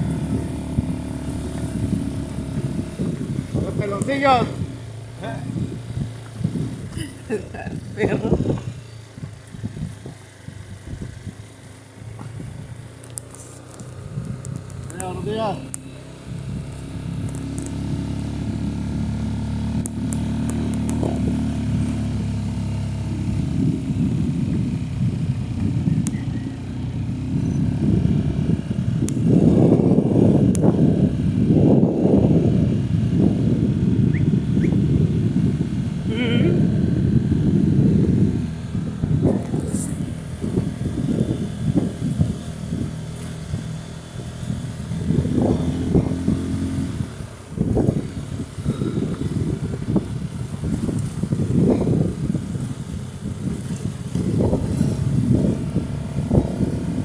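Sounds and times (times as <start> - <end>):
motorcycle engine running: 0.0 - 57.0
wind buffeting microphone: 0.0 - 57.0.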